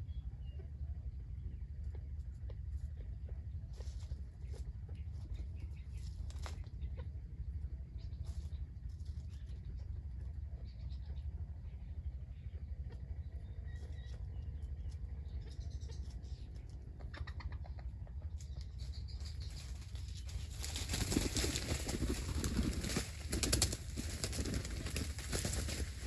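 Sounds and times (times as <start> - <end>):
wings flapping: 19.2 - 26.0.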